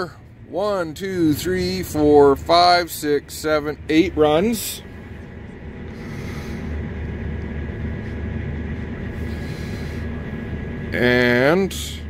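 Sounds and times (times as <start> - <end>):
faint high whine: 0.0 - 12.0
low machine hum: 0.0 - 12.0.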